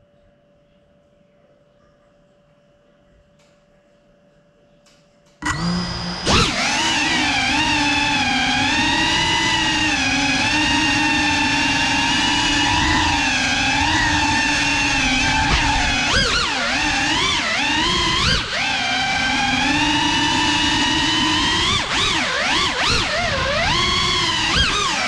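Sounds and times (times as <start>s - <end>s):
drone motors whining: 5.4s - 25.0s.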